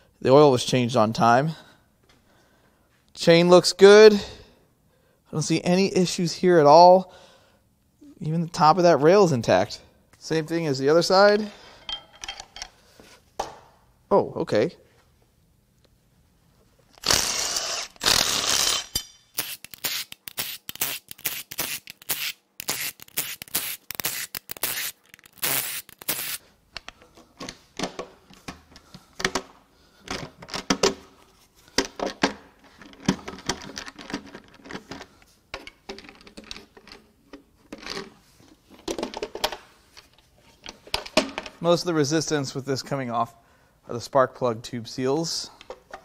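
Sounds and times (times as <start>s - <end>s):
cordless ratchet whirring and clicking: 17.0s - 26.4s.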